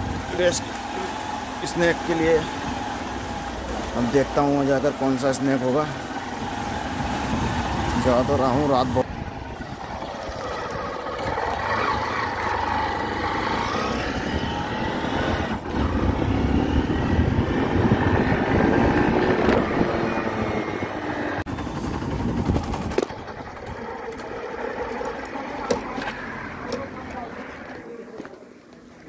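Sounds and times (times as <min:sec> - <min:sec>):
motorcycle engine running: 0:00.0 - 0:27.3
wind rumbling on microphone: 0:06.3 - 0:12.4, 0:14.0 - 0:24.3.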